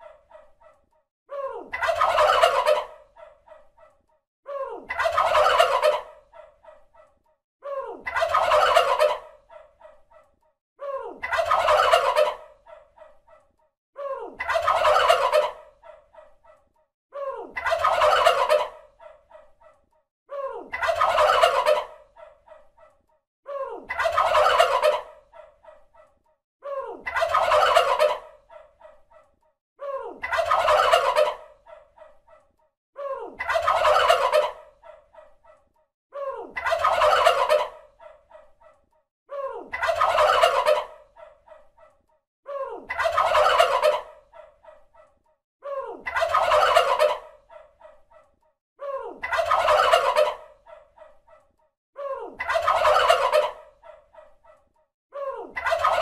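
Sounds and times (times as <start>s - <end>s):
turkey gobbling: 0.0s - 0.8s, 1.7s - 4.0s, 4.9s - 7.2s, 8.0s - 10.3s, 11.2s - 13.5s, 14.4s - 16.6s, 17.6s - 19.8s, 20.7s - 23.0s, 23.9s - 26.2s, 27.0s - 29.3s, 30.2s - 32.5s, 33.3s - 35.6s, 36.5s - 38.8s, 39.7s - 42.0s, 42.8s - 45.2s, 46.0s - 48.3s, 49.1s - 51.4s, 52.3s - 54.7s, 55.4s - 56.0s.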